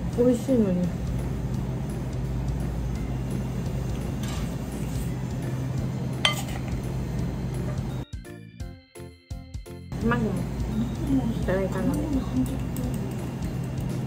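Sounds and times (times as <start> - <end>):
utensil clinking against a dish: 3.9 - 5.0, 6.2 - 6.8.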